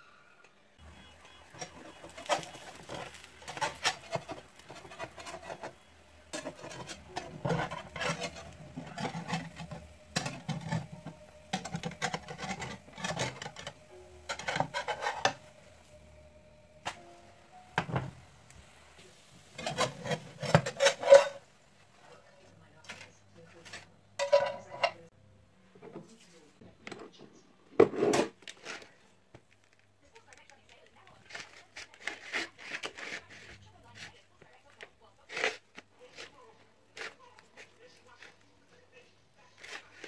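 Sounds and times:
metal utensils clattering on pan: 1.0s - 16.1s, 19.4s - 21.5s, 22.9s - 25.1s.

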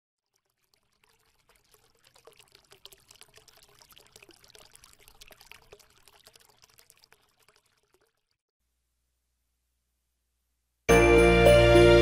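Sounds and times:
liquid pouring and trickling: 0.2s - 8.5s.

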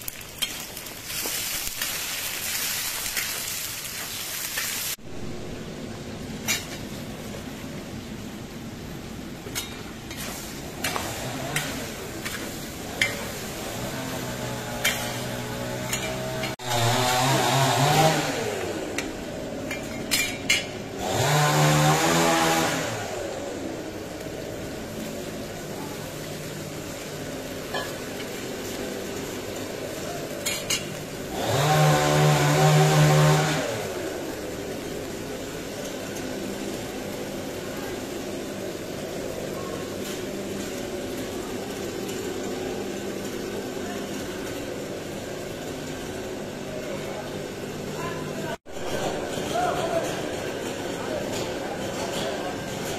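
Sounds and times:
water sizzling in a hot pot: 0.0s - 52.9s
loud motor-like drone: 10.9s - 12.1s, 12.7s - 19.1s, 20.9s - 24.0s, 31.2s - 35.1s.

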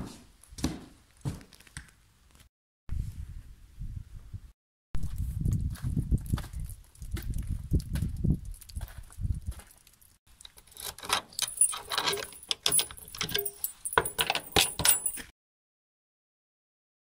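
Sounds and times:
boots on wooden steps: 0.0s - 1.5s
keys jangling: 10.5s - 15.3s
padlock unlocking clicks: 10.7s - 15.2s.

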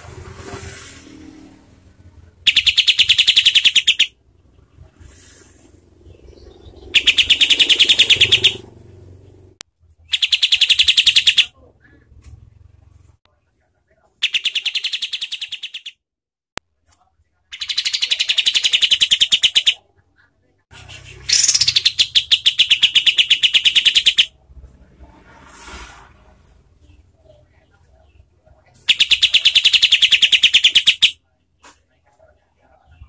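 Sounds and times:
bird singing rapid harsh notes: 2.4s - 4.2s, 6.0s - 8.7s, 10.1s - 11.5s, 14.2s - 16.0s, 17.5s - 19.8s, 20.8s - 24.3s, 28.7s - 31.2s.

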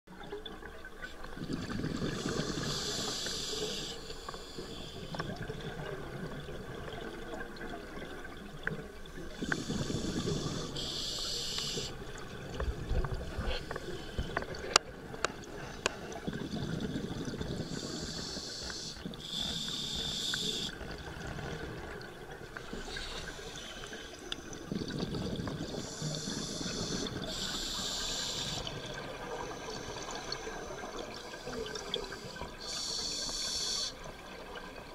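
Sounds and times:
bubbling exhalations: 1.3s - 3.1s, 15.6s - 18.3s, 24.4s - 27.4s
diver breathing through regulator: 9.4s - 12.0s, 17.5s - 20.8s, 25.6s - 28.8s.

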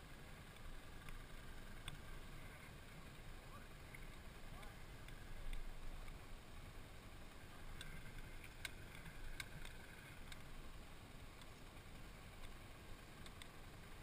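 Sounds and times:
engine idling with low rumble: 0.0s - 14.0s
light clicks: 13.2s - 13.6s.

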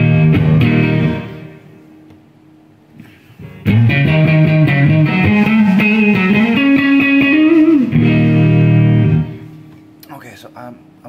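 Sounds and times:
overdriven electric guitar riff: 0.0s - 1.8s, 3.4s - 9.7s.

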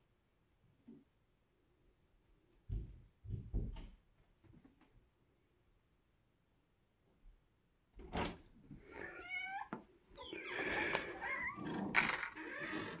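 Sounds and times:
thump: 2.7s - 3.9s
cat meowing: 8.9s - 13.0s.

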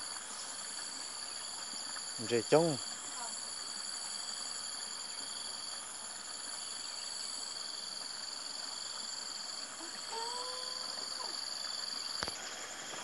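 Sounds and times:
insects trilling: 0.0s - 13.0s.

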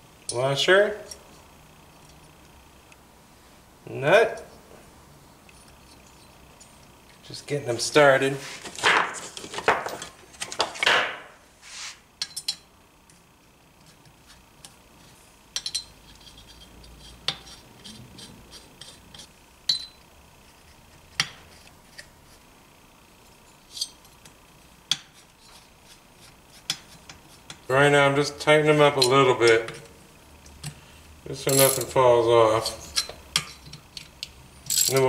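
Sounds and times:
metal washers and nuts clinking: 12.2s - 12.7s, 15.5s - 16.7s, 19.7s - 20.0s, 31.4s - 35.0s.

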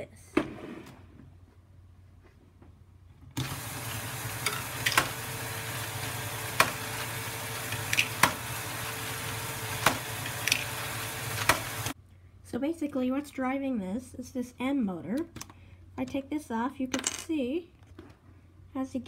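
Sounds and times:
motor hum and plastic gear rattle: 3.2s - 12.0s.

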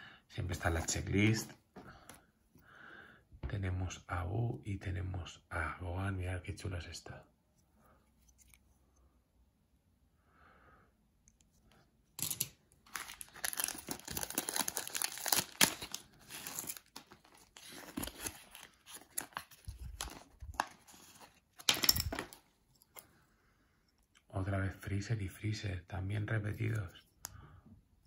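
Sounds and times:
glossy wrapper crinkling: 12.8s - 22.4s
paper rustling: 12.8s - 22.4s.

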